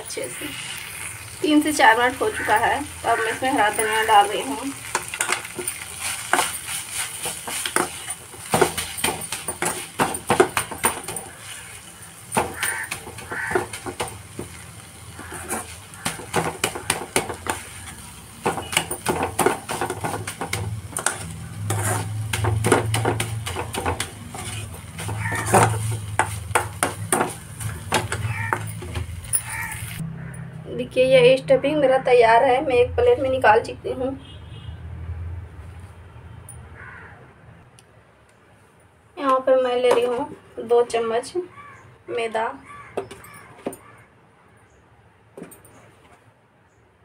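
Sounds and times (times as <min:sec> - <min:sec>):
faint sizzle: 0:00.0 - 0:09.8
spatula scraping metal pan: 0:04.9 - 0:11.9, 0:15.1 - 0:20.2, 0:21.0 - 0:30.0.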